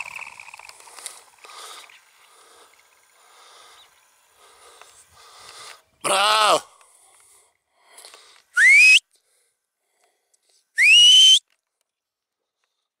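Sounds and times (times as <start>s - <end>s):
loud rising whistles: 8.6s - 9.0s, 10.8s - 11.4s.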